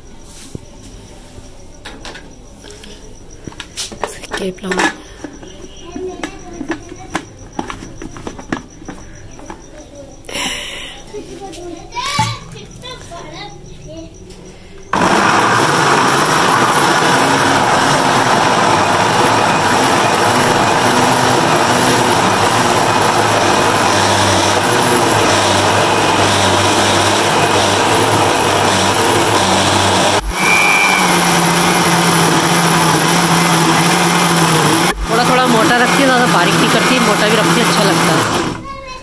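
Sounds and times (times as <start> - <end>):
electric blender grinding: 14.9 - 38.6.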